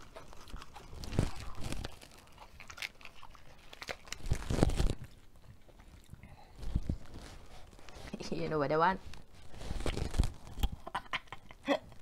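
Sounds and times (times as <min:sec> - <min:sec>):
lettuce leaf crunching: 0:00.0 - 0:08.0, 0:09.4 - 0:10.9
chewing: 0:00.0 - 0:08.1.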